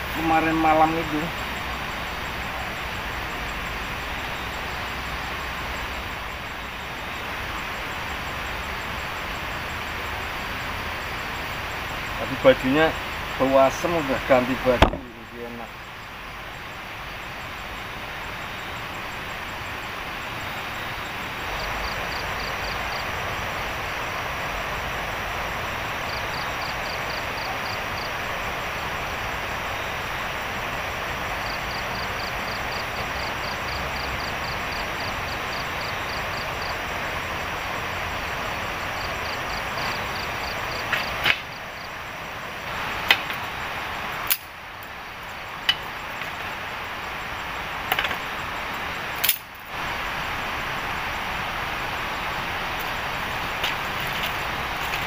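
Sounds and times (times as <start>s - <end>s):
steady rushing noise: 0.0s - 55.0s
bamboo sticks struck and broken: 40.9s - 41.5s, 44.3s - 44.5s, 49.2s - 49.5s.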